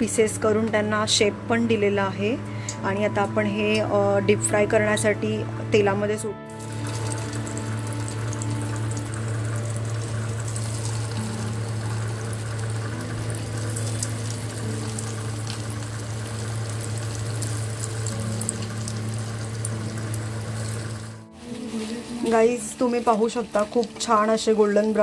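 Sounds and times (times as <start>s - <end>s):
low steady hum: 6.3s - 23.1s
deep-frying sizzle in oil: 6.6s - 21.2s, 21.8s - 25.0s.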